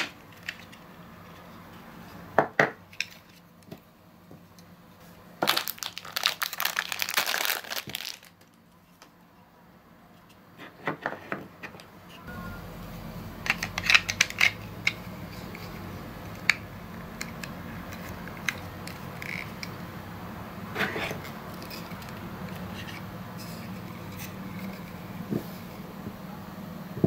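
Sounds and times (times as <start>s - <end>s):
steady low hum: 11.8s - 27.0s
plastic parts clicking: 13.4s - 19.8s.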